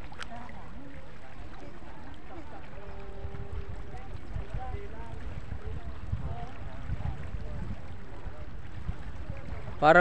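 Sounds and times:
distant crowd voices: 0.0s - 9.9s
wind buffeting microphone: 2.5s - 10.0s.

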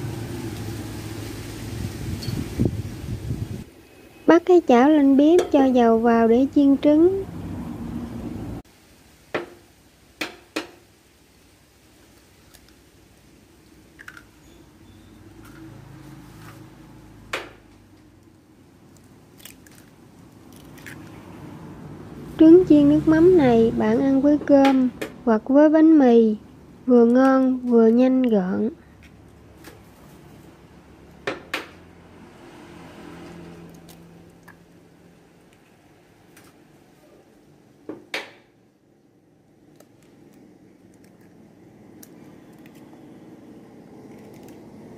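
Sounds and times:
eggshell tapping on pan: 10.2s - 10.8s.

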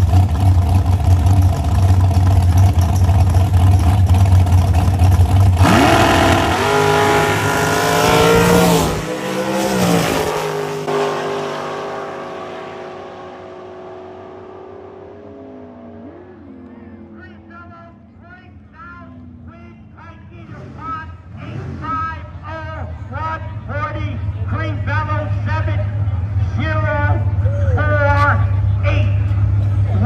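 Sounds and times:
drag race car engines: 0.0s - 30.0s.

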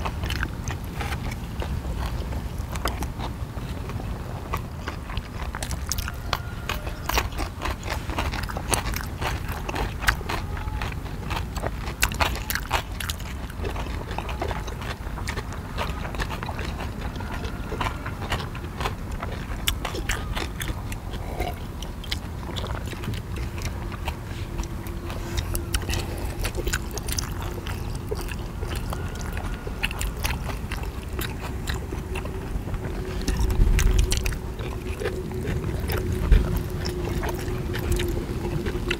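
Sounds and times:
people chewing with wet mouth clicks: 0.0s - 38.9s.

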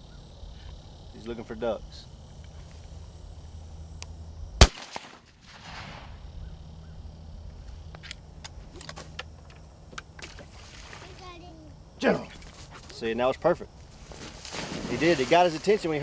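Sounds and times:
rifle shot: 4.6s - 6.2s.

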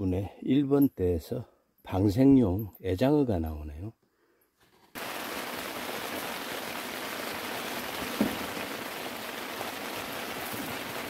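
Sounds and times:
steady rain falling: 5.0s - 11.0s.

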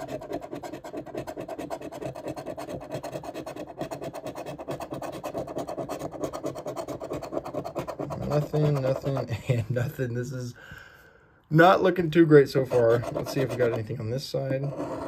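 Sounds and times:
coin scraping a scratch card: 0.0s - 9.2s, 12.7s - 14.0s, 14.6s - 15.0s.

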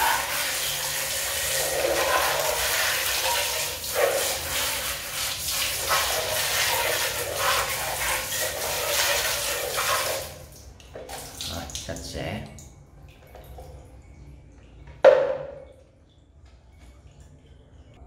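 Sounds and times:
water jet splashing on plastic: 0.0s - 12.0s.

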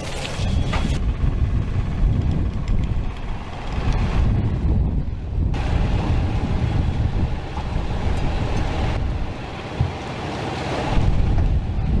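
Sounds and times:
rushing wind-like noise: 0.0s - 12.0s
low rumble: 0.5s - 9.9s.

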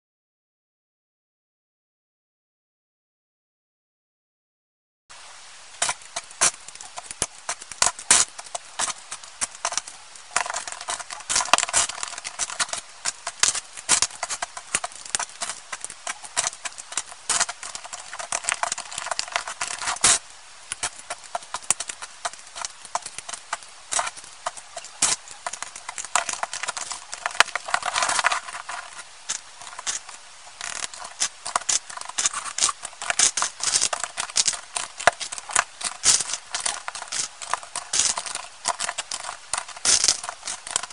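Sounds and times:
plastic bricks clicking: 5.8s - 40.9s.

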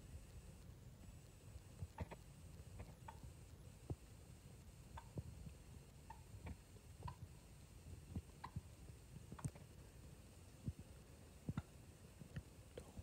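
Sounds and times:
faint small clicks and ticks: 8.0s - 9.8s, 10.4s - 13.0s.

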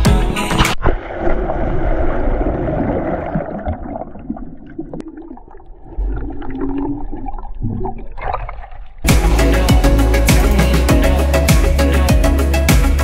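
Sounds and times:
muffled underwater water rush: 0.8s - 9.1s
underwater air bubbles: 0.8s - 9.1s.

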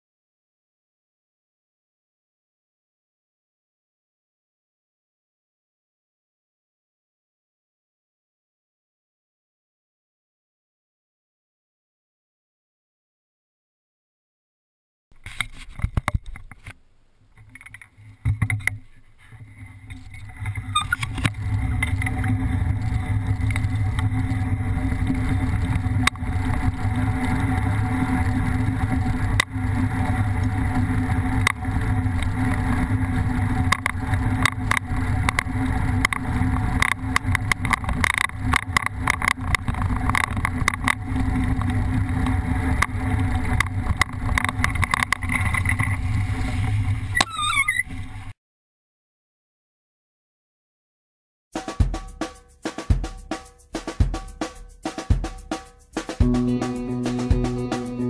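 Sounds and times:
wheels rumbling and rattling on sand: 17.4s - 48.3s.

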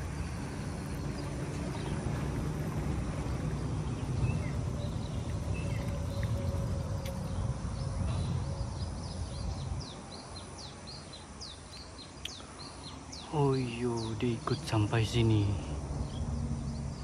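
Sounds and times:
low outdoor rumble: 0.0s - 11.5s
faint bird chirps: 4.0s - 14.9s.

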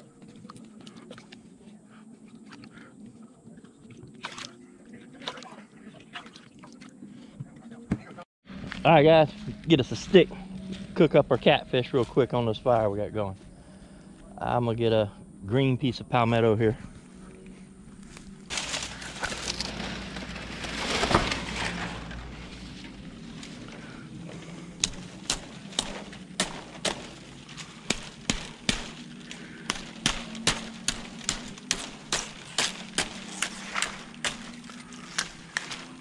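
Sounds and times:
rustling of palmetto: 18.0s - 36.0s
stalk cracking: 18.0s - 36.0s
blade chopping stalk: 24.8s - 36.0s.

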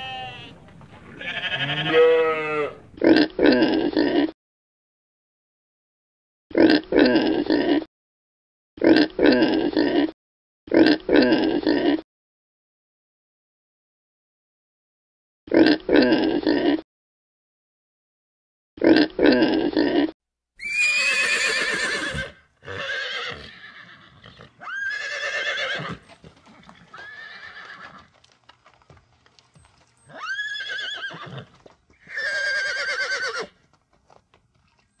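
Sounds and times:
horses whinnying: 0.0s - 3.0s, 20.6s - 28.1s, 30.0s - 33.6s.

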